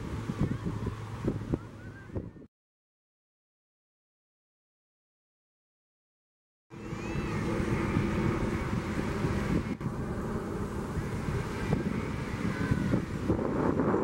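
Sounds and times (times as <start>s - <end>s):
wind buffeting microphone: 0.0s - 2.5s, 6.7s - 14.0s
helicopter rotor and engine: 6.7s - 14.0s.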